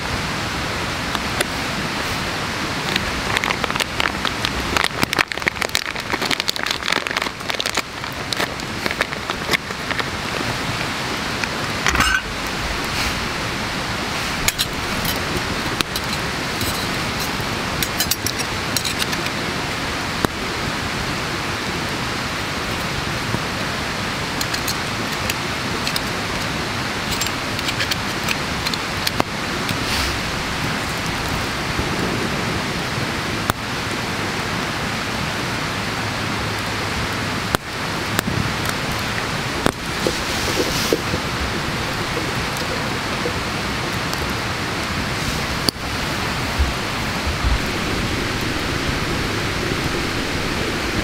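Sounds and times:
campfire crackling: 0.0s - 51.0s
metal stove stand clinking: 11.8s - 12.3s.

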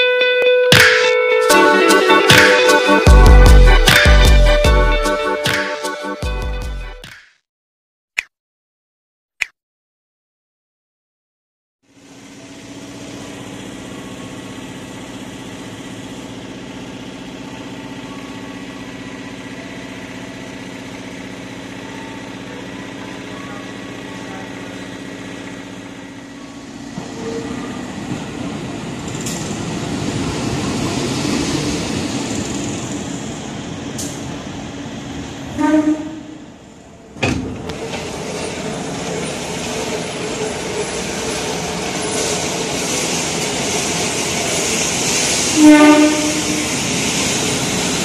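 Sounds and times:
diesel engine idling: 12.0s - 29.0s
locomotive rumbling: 12.3s - 48.0s.

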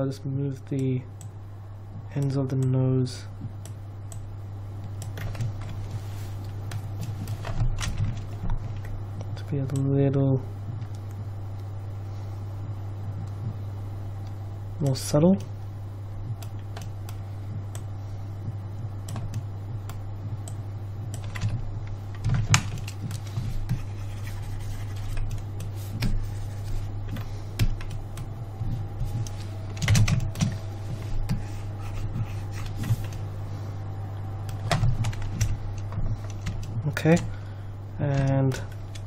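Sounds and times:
steady low hum: 0.0s - 39.0s
computer keyboard keys clicking: 21.2s - 23.3s, 27.1s - 28.3s, 29.2s - 30.6s, 34.5s - 37.3s.

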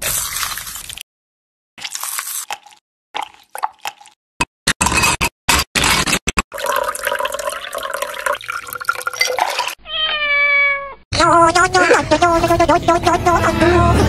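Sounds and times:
liquid pouring over ice: 6.5s - 9.8s
ice cubes clattering into glass: 6.6s - 9.8s.

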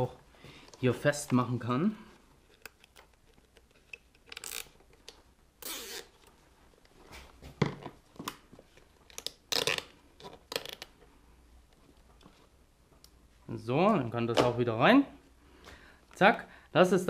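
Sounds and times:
cable tie zipping: 4.3s - 4.9s, 5.6s - 6.3s, 9.2s - 10.9s.

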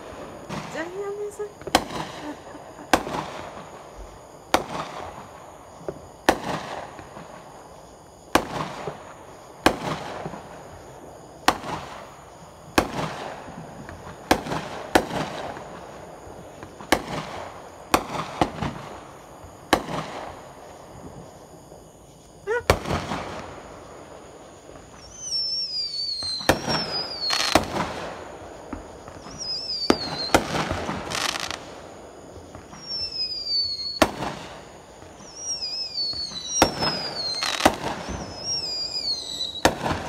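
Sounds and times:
rising firework whistle: 0.0s - 7.4s, 24.7s - 40.0s
fireworks bursting: 0.0s - 40.0s.

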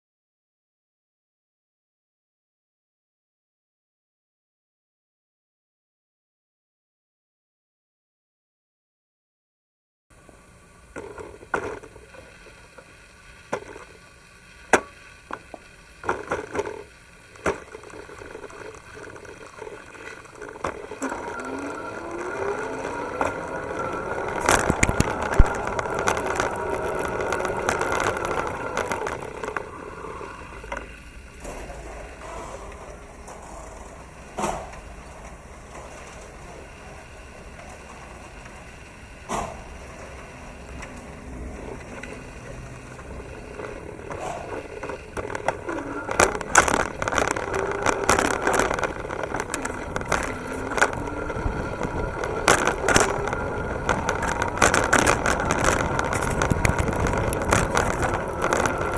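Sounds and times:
bicycle rolling: 10.2s - 58.9s
electric bicycle motor whine: 10.2s - 58.9s
bicycle clattering: 14.7s - 58.9s
bicycle knocks and rattles: 40.9s - 58.9s.

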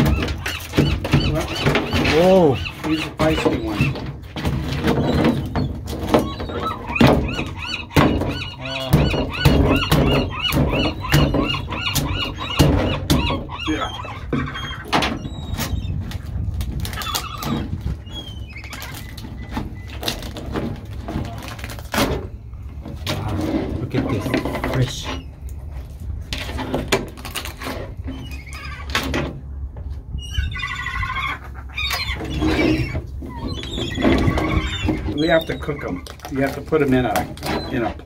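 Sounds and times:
high squealing calls: 0.0s - 4.1s, 4.9s - 16.0s, 30.2s - 38.0s.

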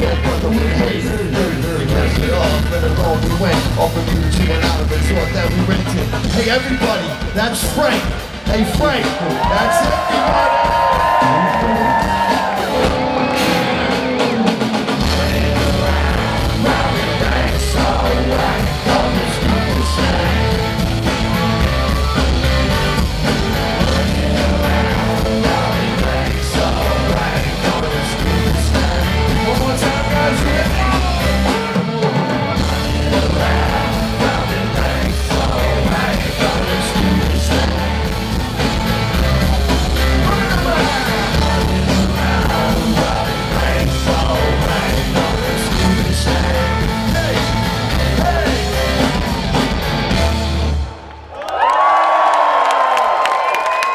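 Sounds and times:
bass guitar: 0.0s - 51.0s
keyboard: 0.0s - 51.2s
drums: 0.0s - 53.9s
electric guitar: 9.4s - 51.2s.

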